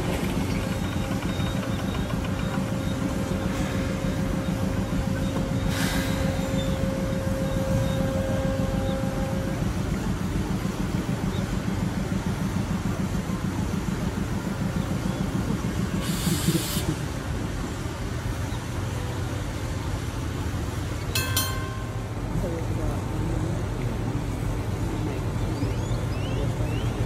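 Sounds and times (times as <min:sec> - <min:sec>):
electric locomotive rumbling: 0:00.0 - 0:27.0
short hiss: 0:05.7 - 0:06.3.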